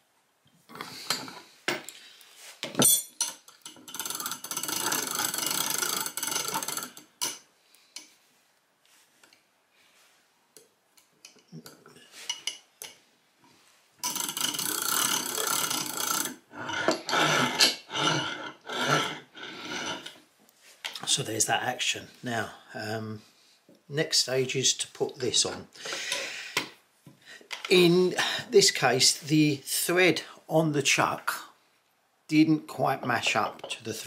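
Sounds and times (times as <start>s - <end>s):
mechanical rattling of crank winder: 3.8s - 7.2s, 14.0s - 20.1s.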